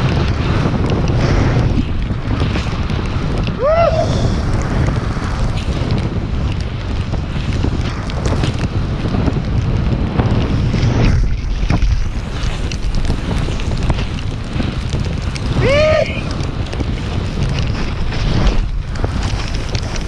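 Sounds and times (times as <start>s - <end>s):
snowboard riding through snow: 0.0s - 20.0s
wind rushing over microphone: 0.0s - 20.0s.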